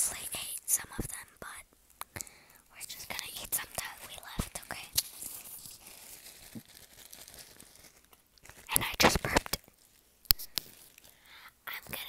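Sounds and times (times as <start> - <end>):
plastic bag crinkling: 3.6 - 11.3.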